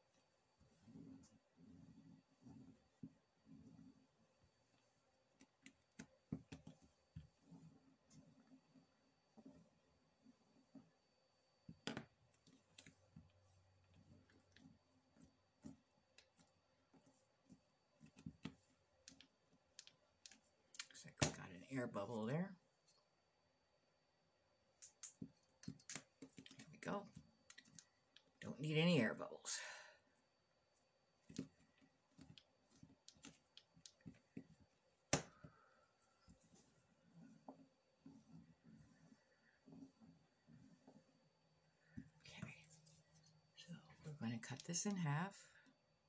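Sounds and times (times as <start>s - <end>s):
hands handling clay clicks and taps: 15.6s - 21.4s, 24.8s - 28.3s, 31.2s - 35.6s.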